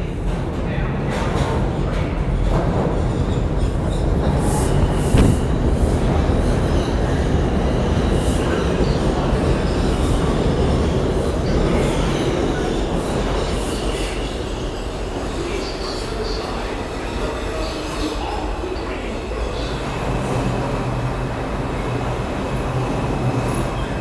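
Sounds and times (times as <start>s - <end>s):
train wheels rumbling on rails: 0.0s - 24.0s
sharp bang: 5.1s - 6.0s.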